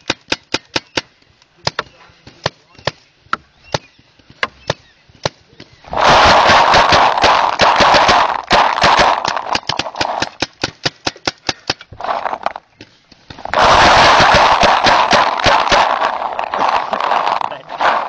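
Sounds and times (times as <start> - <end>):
paintball gun firing: 5.9 - 11.8, 13.4 - 17.3.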